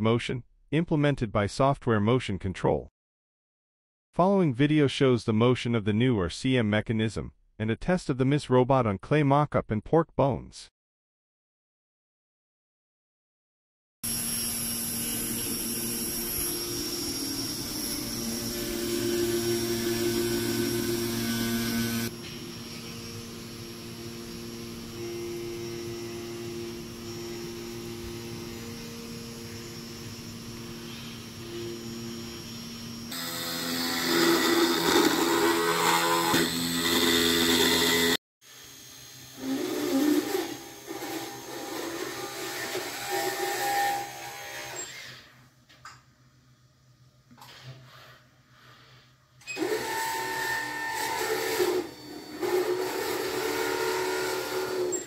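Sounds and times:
electric motors whining: 14.1s - 45.3s, 49.5s - 55.0s.

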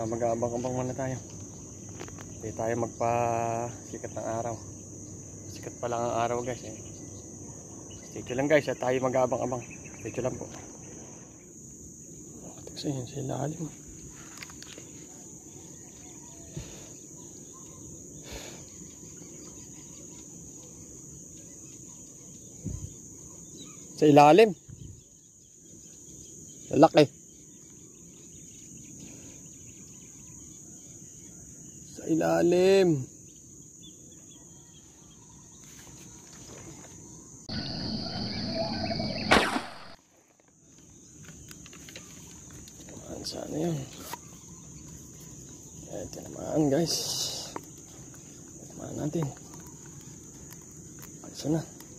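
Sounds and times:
crickets trilling: 0.0s - 51.9s
spear gun firing crack: 39.2s - 40.0s.

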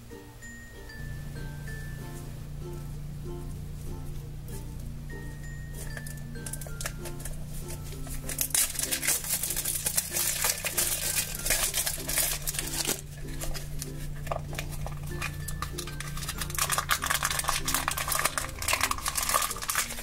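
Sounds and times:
quiet background music: 0.0s - 20.0s
plastic handling: 5.7s - 20.0s
plastic shrink-wrap crinkling and tearing: 5.8s - 20.0s.

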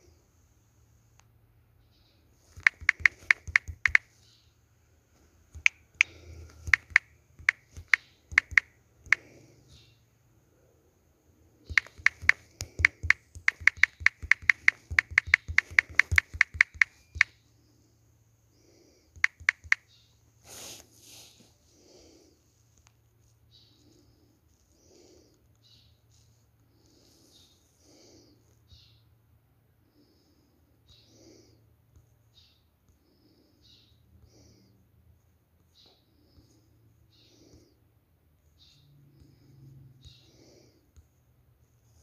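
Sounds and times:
quick sharp clicks: 2.5s - 4.1s, 5.5s - 9.3s, 11.7s - 17.3s, 19.2s - 19.9s.

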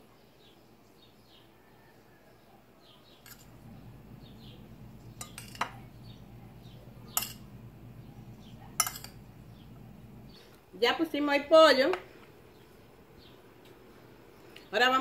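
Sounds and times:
metal spoon clinking on glass: 3.2s - 3.5s, 5.2s - 5.8s, 7.1s - 7.5s, 8.8s - 9.2s
low steady hum: 3.2s - 10.6s.

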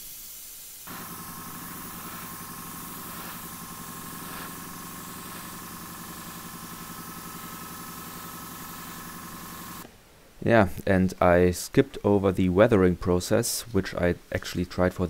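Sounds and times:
small electric motor running: 0.9s - 9.8s.

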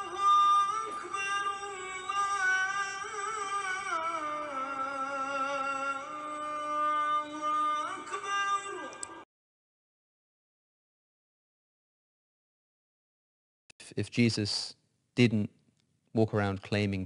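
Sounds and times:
music: 0.0s - 9.2s
person singing long held notes: 0.0s - 9.2s.

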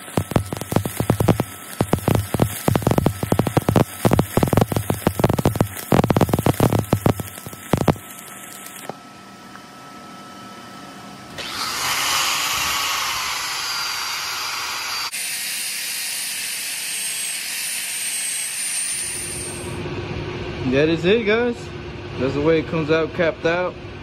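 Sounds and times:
angle grinder whining: 0.0s - 8.0s, 11.3s - 19.8s
welding arc crackling: 0.0s - 9.0s, 19.2s - 19.8s.

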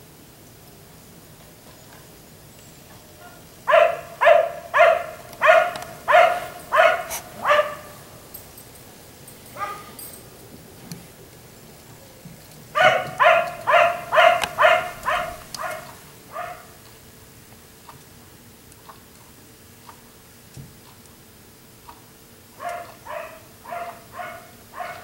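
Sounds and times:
dog barking: 3.2s - 8.0s, 9.6s - 10.0s, 12.7s - 16.8s, 22.6s - 25.0s.

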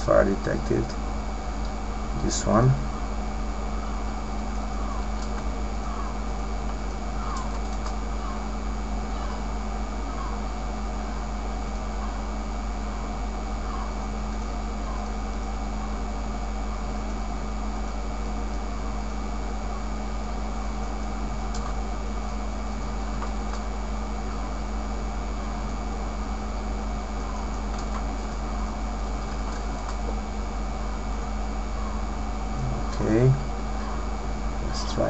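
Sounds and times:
electrical hum and hiss: 0.0s - 35.0s
faint clicks: 4.7s - 8.0s, 27.2s - 28.4s
steady tone: 30.0s - 35.0s.

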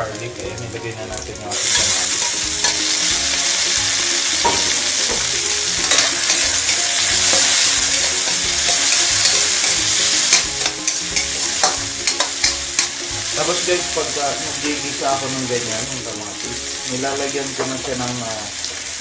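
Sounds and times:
vegetables sizzling in oil: 0.0s - 19.0s
spatula tapping and scraping pan: 4.4s - 13.0s.

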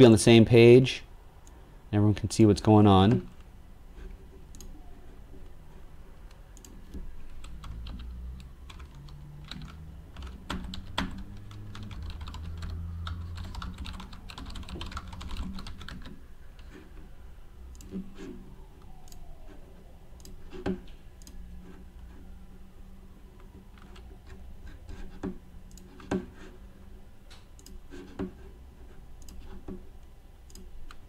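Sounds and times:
typing on computer keyboard: 6.6s - 8.1s, 8.7s - 16.8s.

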